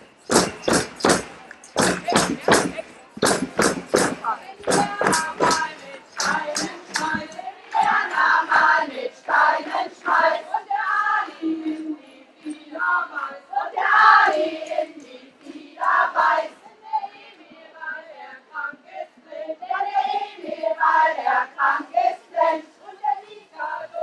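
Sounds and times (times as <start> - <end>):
women singing together: 0.0 - 24.0
hand claps: 0.2 - 8.6.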